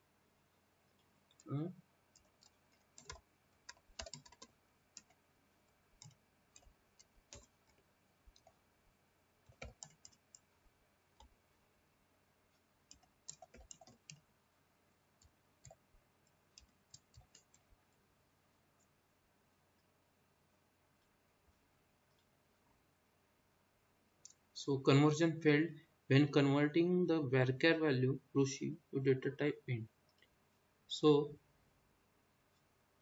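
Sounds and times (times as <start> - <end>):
typing on a keyboard: 2.1 - 5.2, 6.0 - 8.6, 9.4 - 10.4, 12.9 - 14.2, 16.6 - 17.7.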